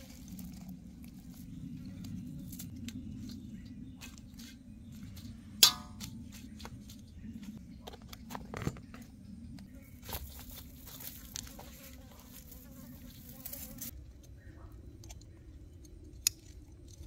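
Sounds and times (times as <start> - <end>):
insect buzzing: 9.7 - 14.0.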